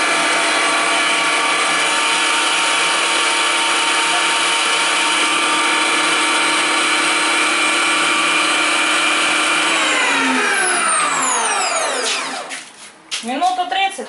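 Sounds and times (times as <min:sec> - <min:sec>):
electric meat grinder running: 0:00.0 - 0:12.7.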